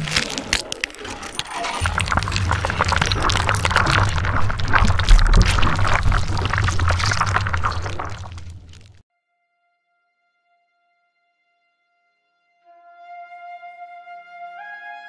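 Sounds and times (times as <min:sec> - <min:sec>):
glitchy crackles and clicks: 0:00.0 - 0:09.0
deep bass drone: 0:01.8 - 0:09.0.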